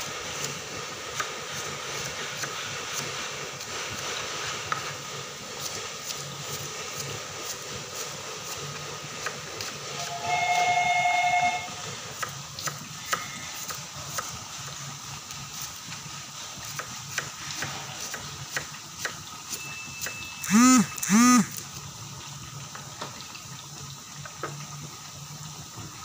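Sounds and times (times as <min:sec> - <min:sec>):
onions sizzling in oil: 0:00.0 - 0:20.5, 0:21.6 - 0:26.0
whistle-like tone: 0:09.9 - 0:11.9, 0:19.5 - 0:21.5.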